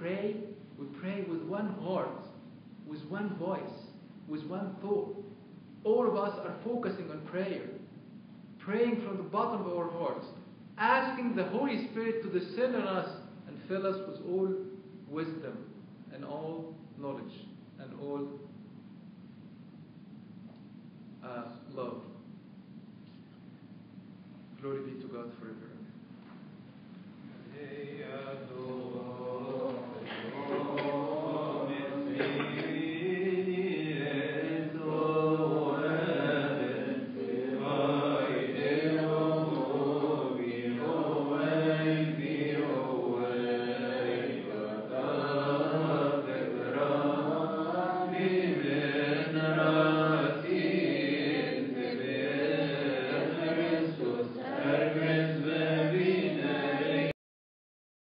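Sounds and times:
voices chanting a hymn: 27.4 - 57.2.

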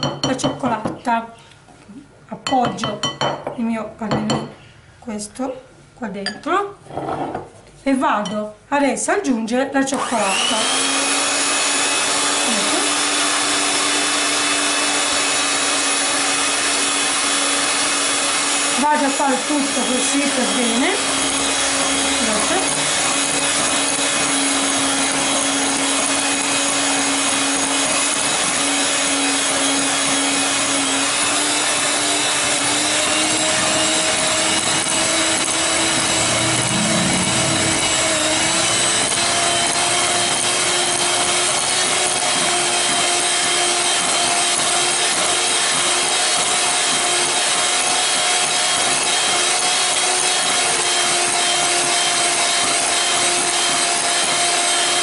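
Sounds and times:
electric hand mixer whining: 9.9 - 55.0.

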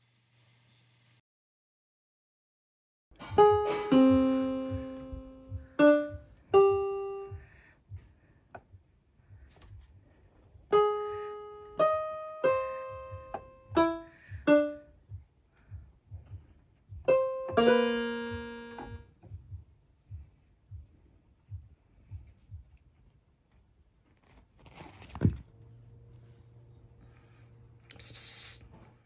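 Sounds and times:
piano notes from keyboard: 3.2 - 7.6, 10.6 - 19.6.

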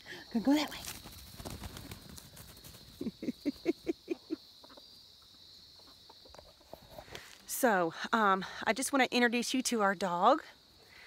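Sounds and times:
high insect drone: 0.0 - 11.0
chicken clucking: 3.0 - 7.1.

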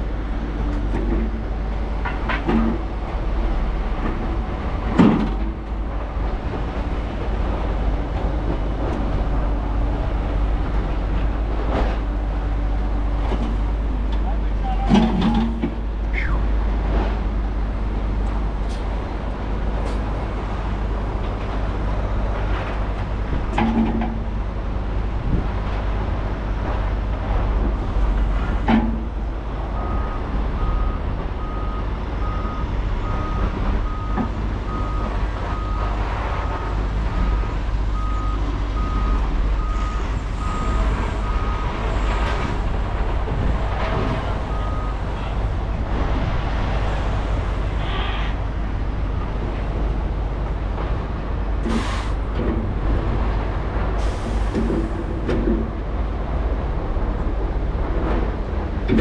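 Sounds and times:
reversing alarm beeping: 29.8 - 35.9, 37.2 - 41.8.

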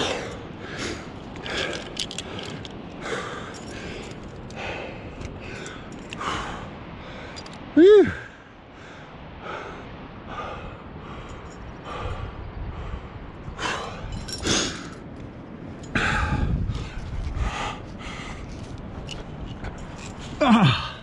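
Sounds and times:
person breathing hard: 0.0 - 15.0.

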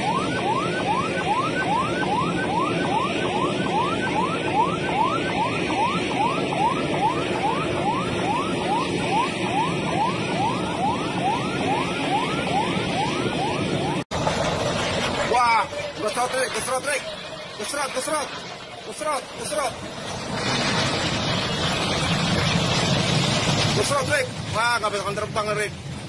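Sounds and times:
siren yelping: 0.0 - 14.1, 15.1 - 19.9.

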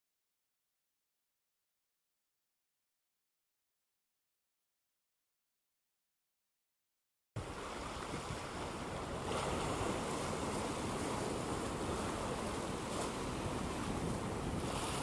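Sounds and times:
waves washing over rocks: 7.4 - 15.0
wind on microphone: 7.4 - 15.0.

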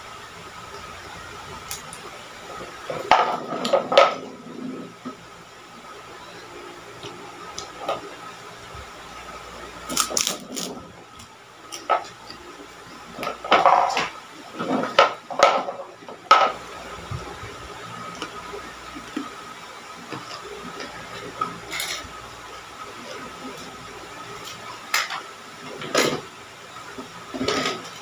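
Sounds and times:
cracker crunching: 9.9 - 10.8.

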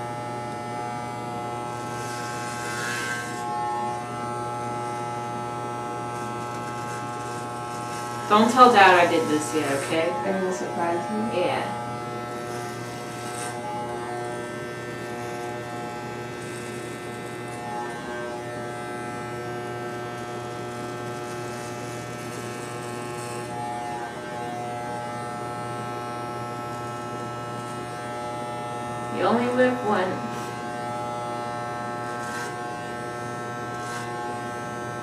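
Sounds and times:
hair clippers buzzing: 0.0 - 35.0.

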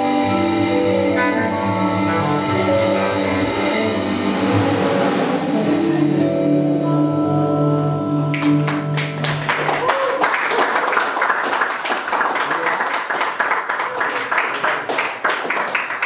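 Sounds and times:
jazz ensemble sustained notes: 0.0 - 9.8
audience applause: 8.3 - 16.0.

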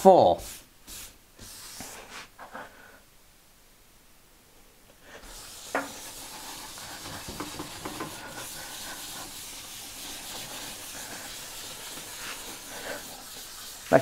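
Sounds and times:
sponge pad scrubbing wood: 0.3 - 2.3, 5.2 - 14.0.

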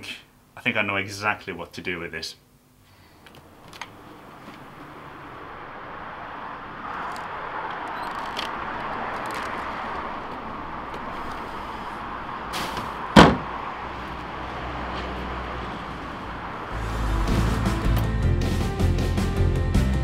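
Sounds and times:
distant traffic: 3.1 - 18.1
wheelie bin lid slamming: 12.5 - 13.6.

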